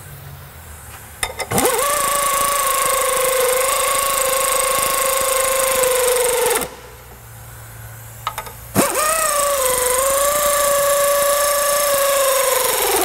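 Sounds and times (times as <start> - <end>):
air ratchet whining: 1.2 - 6.8, 8.2 - 13.0.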